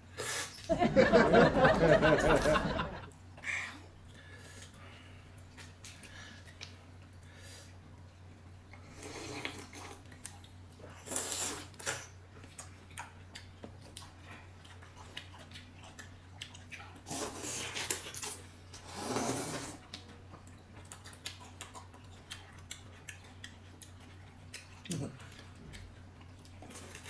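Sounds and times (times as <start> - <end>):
people biting and chewing: 8.7 - 27.0.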